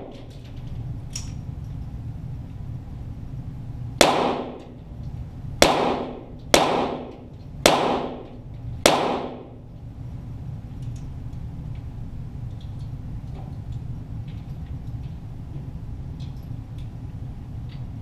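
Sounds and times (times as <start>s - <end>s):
pistol shots with echo: 4.0s - 4.7s, 5.6s - 9.6s.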